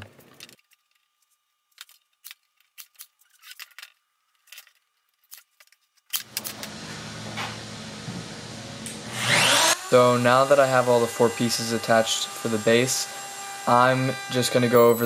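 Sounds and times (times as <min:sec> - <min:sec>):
low machine hum with hiss: 0:06.2 - 0:12.8.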